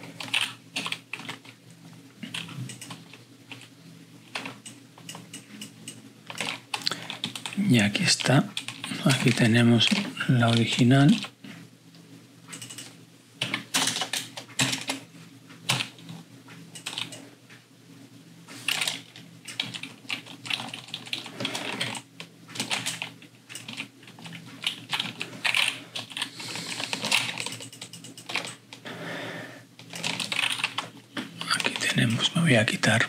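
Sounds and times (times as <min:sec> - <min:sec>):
low steady hum: 0:00.0 - 0:33.0
keyboard keys clicking: 0:12.5 - 0:15.0.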